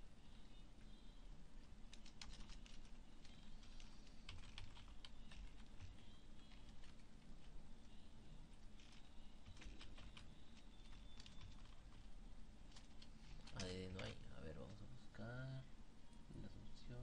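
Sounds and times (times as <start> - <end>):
steady low hum: 0.0 - 17.0
keyboard typing: 1.6 - 14.8.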